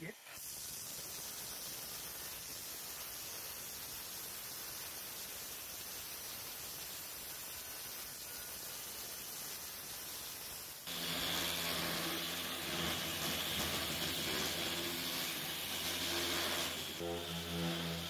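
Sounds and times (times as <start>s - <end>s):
steady hiss: 0.0s - 18.0s
orbital sander on metal: 10.9s - 18.0s.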